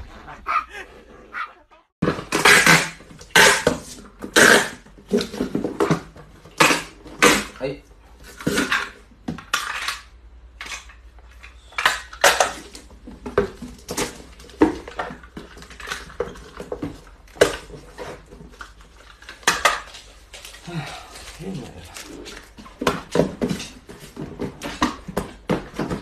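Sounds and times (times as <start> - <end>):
tape dispenser knocking boxes: 2.0 - 7.6.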